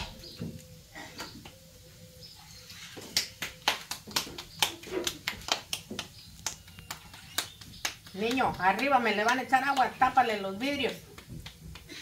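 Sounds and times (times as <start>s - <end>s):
hands slapping dough: 3.0s - 12.0s.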